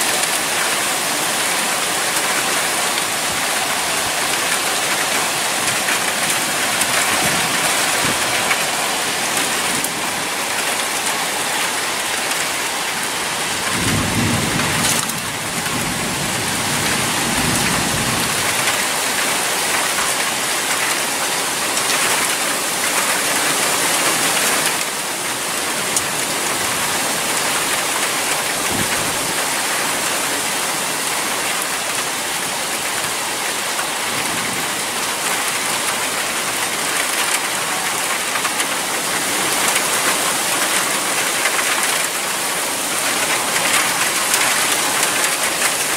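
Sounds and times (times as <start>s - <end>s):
heavy rain falling: 0.0s - 45.9s
thunder rumbling: 2.4s - 11.2s, 13.5s - 18.8s.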